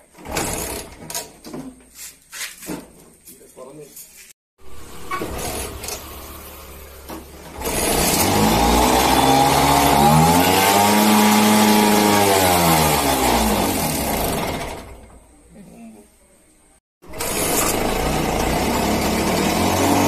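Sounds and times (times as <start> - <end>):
scooter engine revving: 4.6 - 15.2, 17.0 - 20.0.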